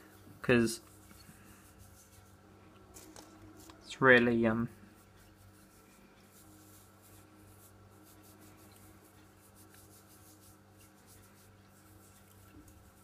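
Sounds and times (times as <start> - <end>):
low steady hum: 0.0 - 13.0
fingertips rubbing gritty paste: 4.7 - 13.0.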